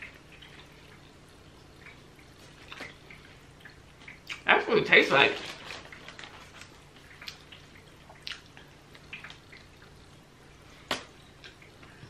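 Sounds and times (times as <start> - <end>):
eating clicks and smacks: 2.6 - 4.5, 6.6 - 9.9.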